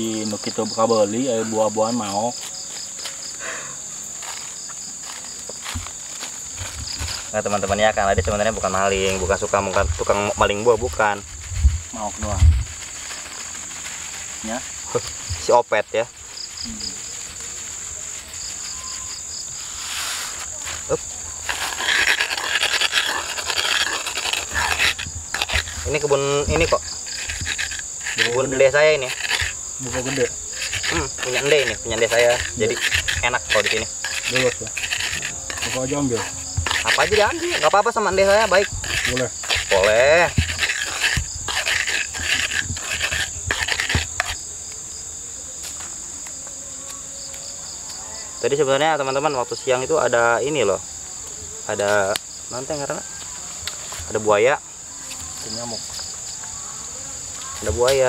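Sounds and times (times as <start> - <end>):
crickets chirping: 0.0 - 58.0
pestle grinding in mortar: 21.0 - 44.4.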